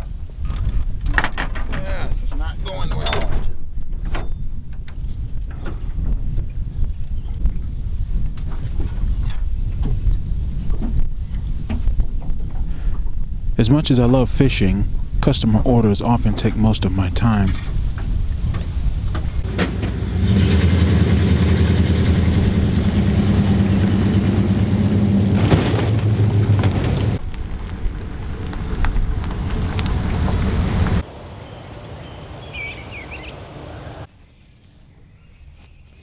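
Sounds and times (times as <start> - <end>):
boat motor humming: 17.7 - 34.0
bird chirps: 31.0 - 36.0.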